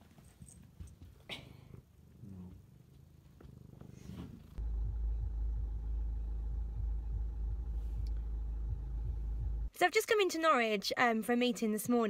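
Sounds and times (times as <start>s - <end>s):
low rumble inside car cabin: 4.6s - 9.7s.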